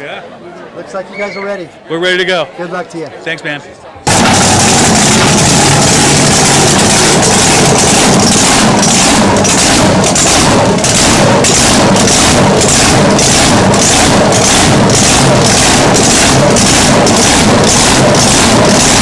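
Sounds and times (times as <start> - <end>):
racing engine lumpy idle: 4.1 - 19.0.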